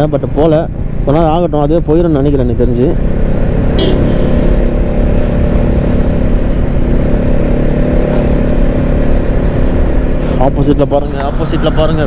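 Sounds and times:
motorcycle engine running: 0.0s - 12.0s
wind noise rumble: 2.9s - 10.5s.

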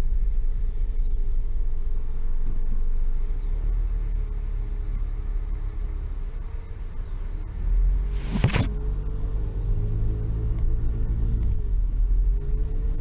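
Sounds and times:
car engine: 0.0s - 13.0s
road rumble: 0.0s - 13.0s.

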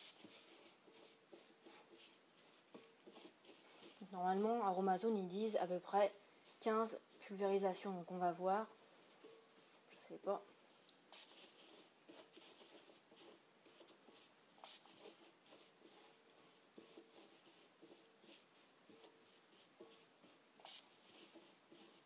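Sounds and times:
scratchy rubbing of powder: 0.0s - 22.0s.

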